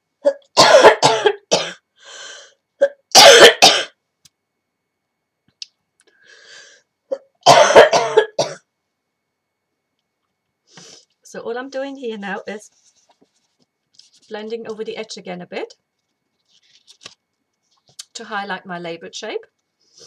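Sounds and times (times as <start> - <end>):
woman coughing: 0.3 - 1.8, 2.8 - 4.0, 7.1 - 8.6
woman breathing in: 6.1 - 6.9.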